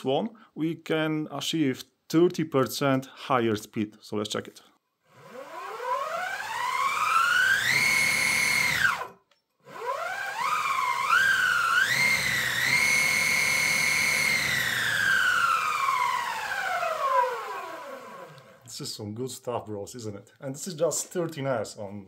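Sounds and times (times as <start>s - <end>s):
electric motor whine: 5.1s - 9.1s, 9.7s - 18.6s.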